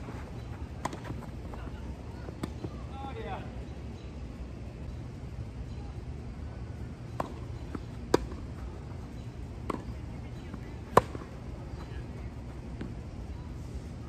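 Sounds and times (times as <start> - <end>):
tennis ball struck by rackets: 0.8 - 1.2, 7.1 - 8.5, 9.6 - 9.9, 10.8 - 11.3.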